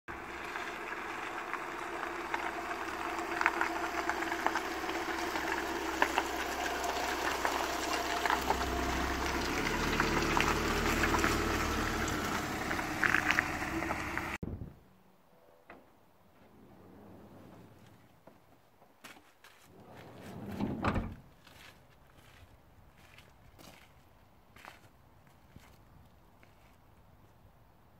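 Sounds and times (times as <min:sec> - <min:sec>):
van engine idling: 0:00.1 - 0:14.4.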